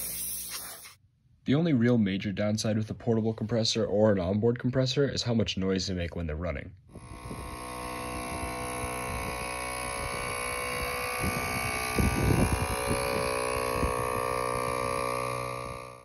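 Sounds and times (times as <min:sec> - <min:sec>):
air compressor running: 0:00.0 - 0:00.9, 0:06.9 - 0:16.0.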